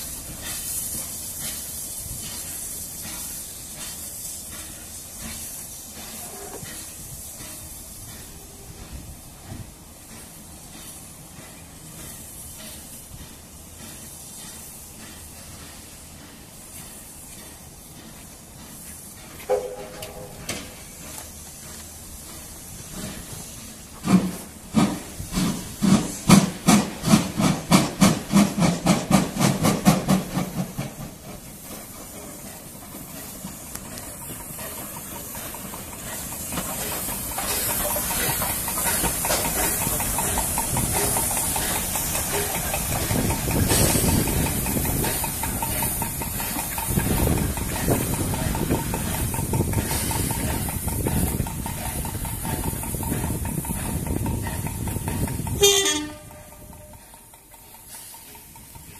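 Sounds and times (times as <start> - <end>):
hiss of steam: 0.0 - 56.1, 56.7 - 58.9
locomotive running rumble: 0.0 - 58.9
steam locomotive exhaust chuffs: 0.0 - 58.9.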